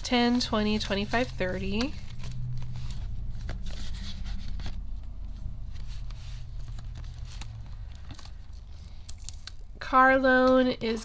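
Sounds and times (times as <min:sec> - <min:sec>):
banknotes rubbing and sliding: 0:00.0 - 0:08.8
steady low hum: 0:00.0 - 0:10.0.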